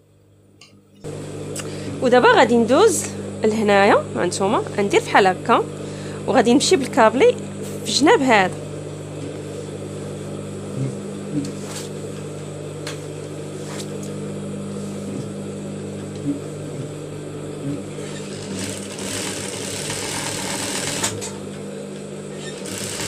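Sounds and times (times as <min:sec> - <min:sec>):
sewing machine motor hum: 0:05.7 - 0:23.0
sewing machine stitching whirr: 0:17.9 - 0:21.4, 0:22.3 - 0:23.0.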